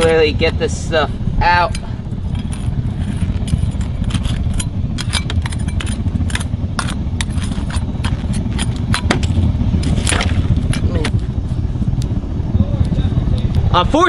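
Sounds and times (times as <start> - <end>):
steady low roar: 0.0 - 14.0
metal spoon scraping crucible: 2.3 - 8.8.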